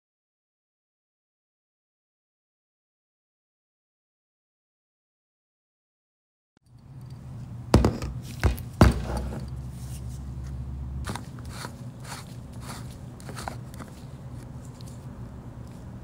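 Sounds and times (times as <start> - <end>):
steady low hum: 6.6 - 16.0
sharp knocks on workbench: 7.8 - 9.4.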